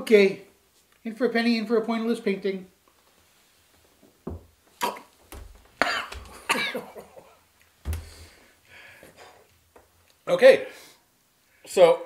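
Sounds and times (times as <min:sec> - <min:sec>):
person coughing harshly: 0:05.8 - 0:07.2.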